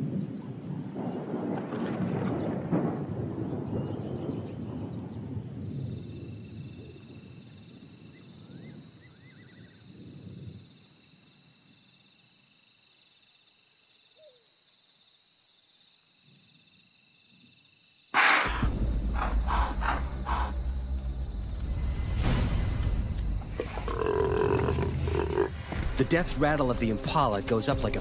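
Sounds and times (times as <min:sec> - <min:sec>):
low rumble of thunder: 0:00.0 - 0:10.9, 0:18.5 - 0:28.0
crickets chirring: 0:00.1 - 0:28.0.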